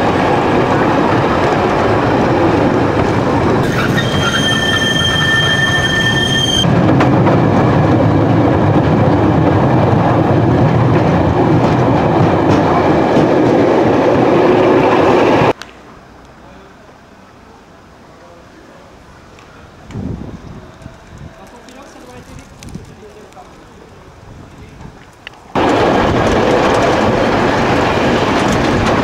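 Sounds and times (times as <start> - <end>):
tram wheels rumbling on rails: 0.0 - 15.6, 19.2 - 29.0
high wheel squeal: 3.6 - 6.7.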